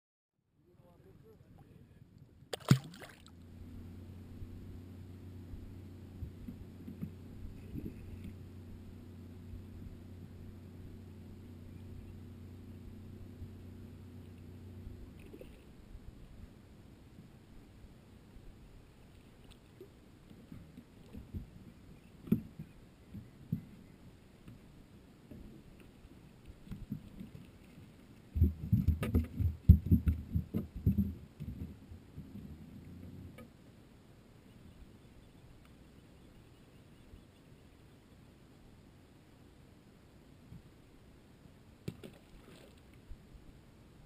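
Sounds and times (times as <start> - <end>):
steady low hum: 0.5 - 44.0
hollow knocks on aluminum boat: 28.4 - 32.2.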